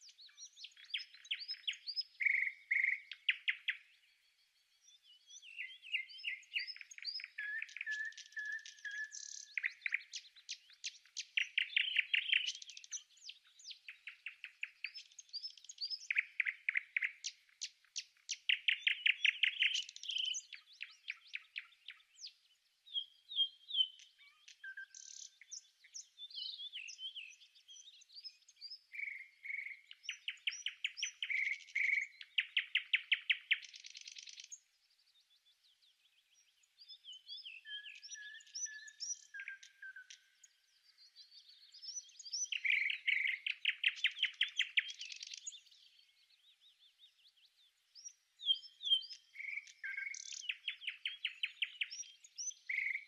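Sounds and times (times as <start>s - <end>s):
nestlings begging with high chirps: 0.0s - 3.9s, 5.6s - 27.1s, 40.9s - 53.0s.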